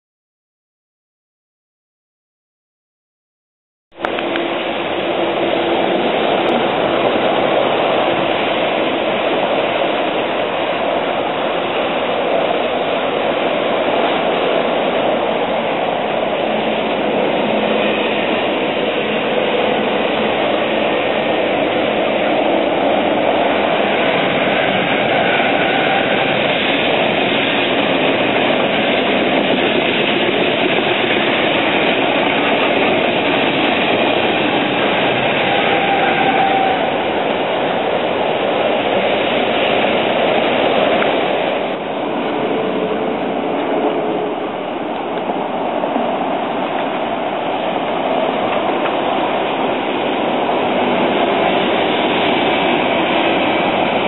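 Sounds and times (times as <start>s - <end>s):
highway traffic: 3.9s - 54.0s
electric train running on track: 4.0s - 54.0s.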